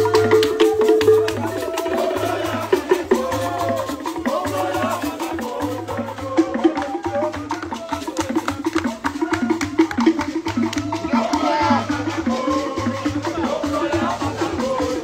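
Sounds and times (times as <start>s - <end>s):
metal gongs struck rhythmically: 0.0s - 6.8s
people singing: 0.0s - 15.0s.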